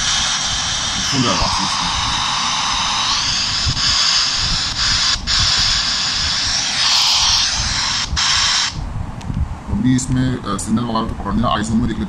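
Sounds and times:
radio static hiss: 0.0 - 8.9.

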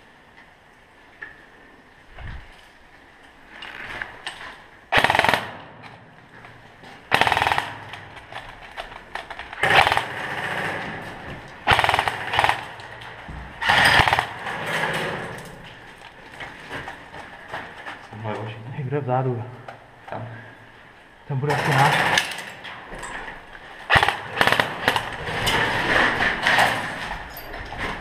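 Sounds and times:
airsoft gun rapid-fire bursts: 5.0 - 5.6, 7.1 - 7.8, 9.6 - 10.8, 11.6 - 12.8, 13.6 - 14.4, 23.9 - 25.1.

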